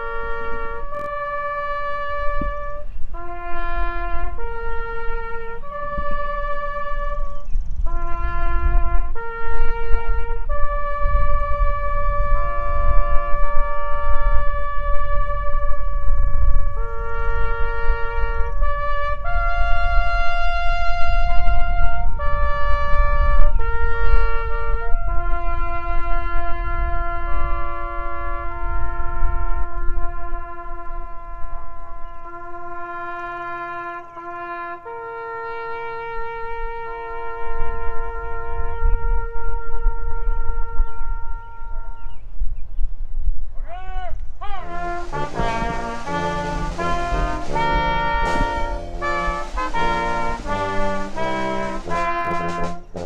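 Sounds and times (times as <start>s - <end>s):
brass ensemble playing chords: 0.0s - 40.3s, 44.6s - 53.0s
wind rumble on microphone: 0.0s - 53.0s
short swooping notes: 44.6s - 53.0s.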